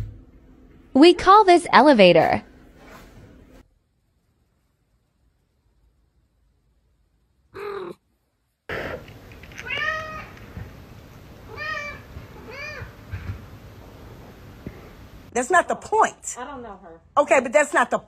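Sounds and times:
room noise: 0:00.0 - 0:18.0
cat meowing: 0:09.5 - 0:10.6, 0:11.5 - 0:13.0.

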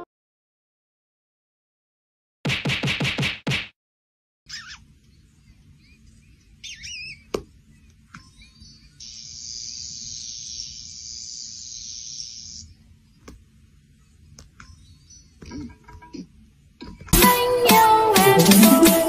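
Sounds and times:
steady high hiss: 0:09.0 - 0:12.9.

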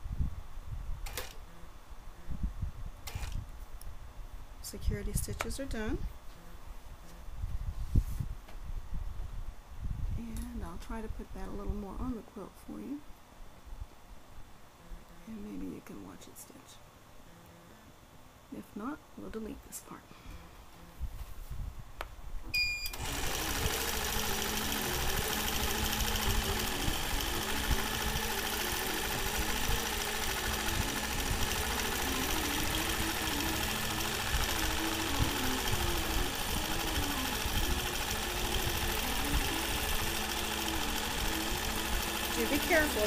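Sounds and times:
short electronic beep: 0:22.5 - 0:23.0
quilting machine motor hum: 0:22.9 - 0:43.0.

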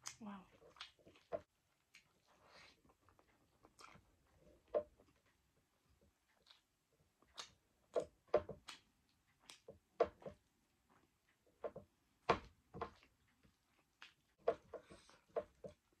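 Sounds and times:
wet chewing smacks: 0:06.3 - 0:08.0.

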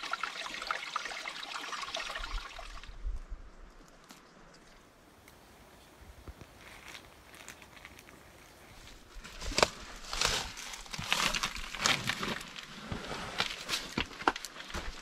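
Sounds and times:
footsteps on sand and gravel: 0:06.4 - 0:15.0.

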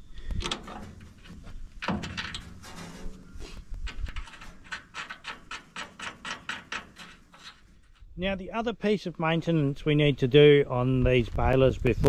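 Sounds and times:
metal knock: 0:01.8 - 0:03.0.

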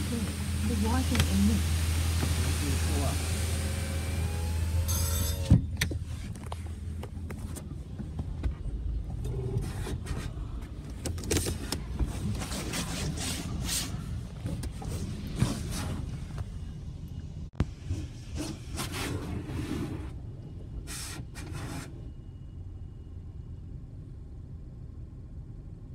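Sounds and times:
car wash spray hissing: 0:00.0 - 0:05.5
car engine idling: 0:00.0 - 0:12.4.

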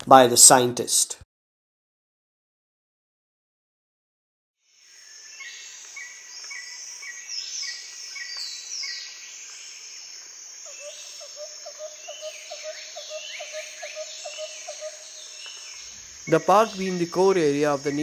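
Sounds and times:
high insect hiss: 0:04.6 - 0:18.0
birds chirping and whistling: 0:05.3 - 0:09.2, 0:10.7 - 0:18.0
low pulsing animal call: 0:10.7 - 0:18.0.

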